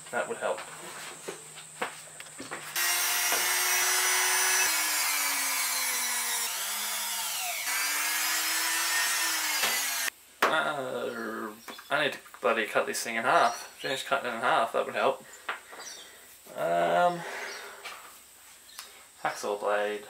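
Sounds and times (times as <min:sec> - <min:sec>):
electric drill boring into wood: 0:02.8 - 0:10.1.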